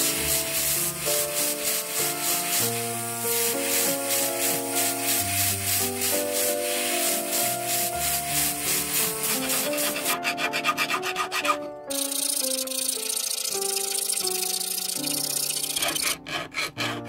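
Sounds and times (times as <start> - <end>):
hand file scraping metal: 0.0 - 17.0
sanding drum rubbing metal: 0.0 - 17.0
soft piano music: 0.0 - 17.0.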